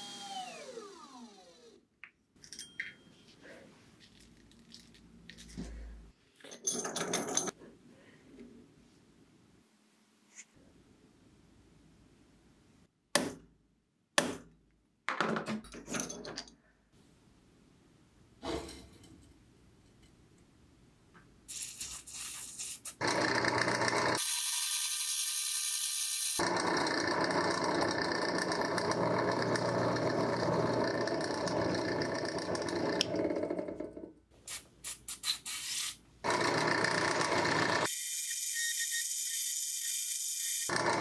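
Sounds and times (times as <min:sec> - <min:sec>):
drill press cutting metal: 0:23.0 - 0:25.1, 0:26.4 - 0:33.8, 0:36.3 - 0:37.9, 0:40.6 - 0:41.0.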